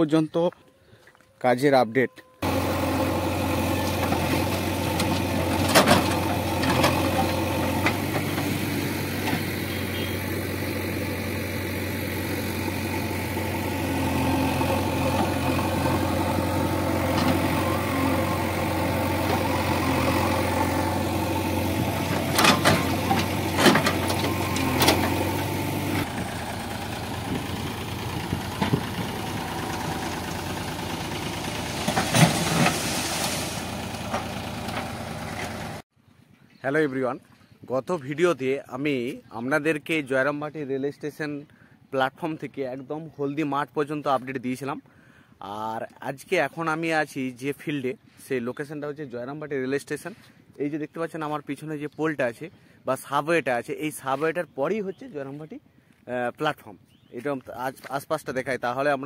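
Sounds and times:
tractor engine running: 0:02.4 - 0:35.8
diesel engine running: 0:02.4 - 0:35.9
soil striking metal trolley: 0:03.7 - 0:10.1, 0:14.1 - 0:35.8.

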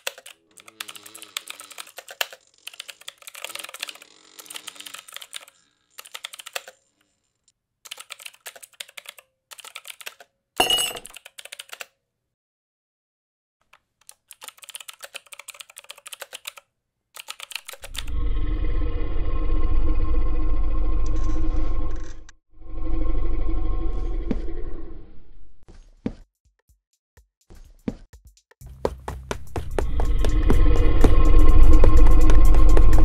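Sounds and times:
mechanical keyboard key clicks: 0:14.0 - 0:16.6, 0:17.2 - 0:18.0
steady low drone: 0:17.8 - 0:25.6, 0:29.4 - 0:33.0.

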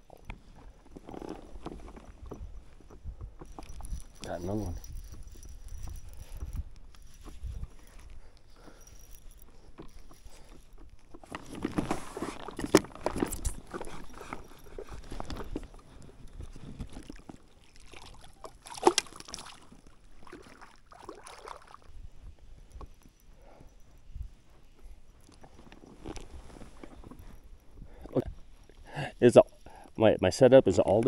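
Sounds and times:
water sloshing: 0:00.0 - 0:22.0.

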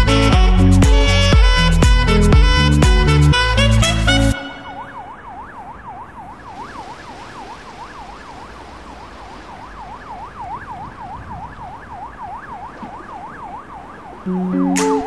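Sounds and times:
siren yelping: 0:04.3 - 0:15.0.

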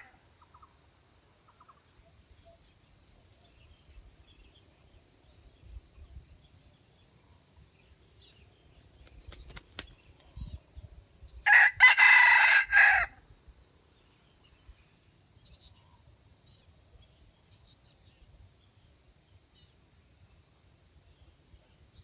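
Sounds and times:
faint small bird chirps: 0:00.0 - 0:00.8, 0:01.4 - 0:11.5, 0:14.1 - 0:18.9
rooster crowing: 0:11.4 - 0:13.2.

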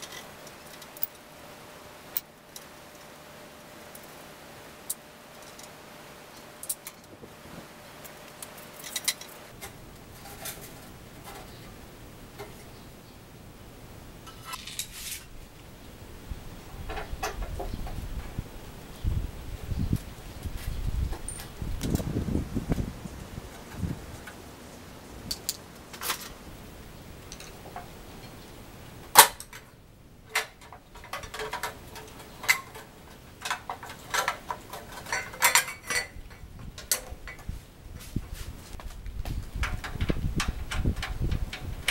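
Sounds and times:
hand tools clicking and tapping: 0:30.3 - 0:37.5, 0:38.7 - 0:41.9.

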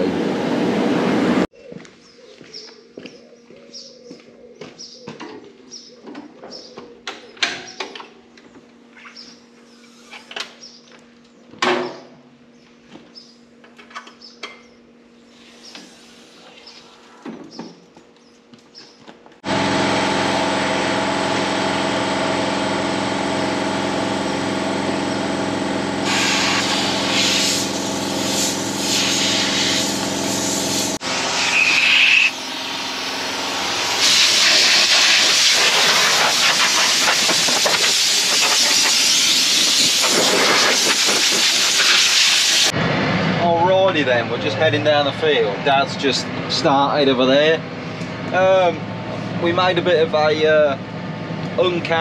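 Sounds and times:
brief high whine: 0:19.4 - 0:35.6
farm machinery engine running: 0:19.4 - 0:36.0
rushing hiss: 0:34.0 - 0:42.7.

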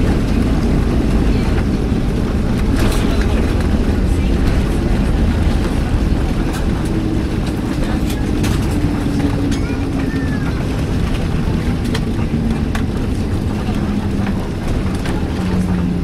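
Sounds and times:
airplane cabin rumble: 0:00.0 - 0:16.0.

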